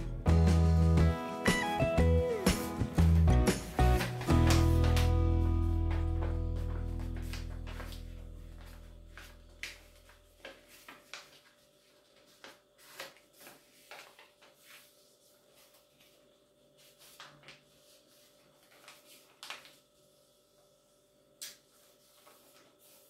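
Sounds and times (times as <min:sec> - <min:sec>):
background music: 0:00.0 - 0:09.0
paper folding and crackling: 0:03.0 - 0:20.8, 0:21.4 - 0:23.0.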